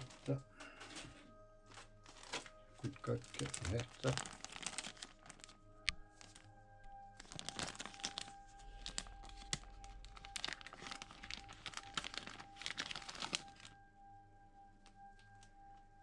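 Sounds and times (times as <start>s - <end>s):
plastic bag crinkling: 0.0s - 6.5s, 7.2s - 13.8s.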